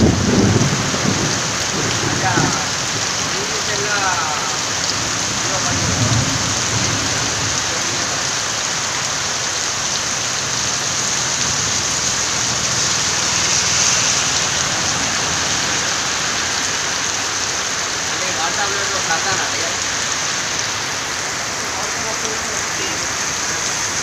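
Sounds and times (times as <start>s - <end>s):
heavy rain on flooded road: 0.0s - 24.0s.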